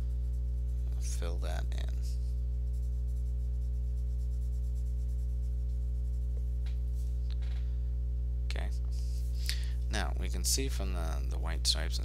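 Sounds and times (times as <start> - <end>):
pencil shading on paper: 0.0 - 6.6
loud low hum: 0.0 - 12.0.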